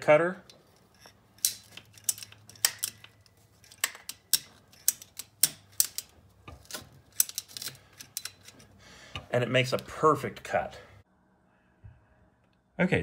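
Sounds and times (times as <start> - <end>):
pipe cutter ratchet clicking: 1.0 - 9.9.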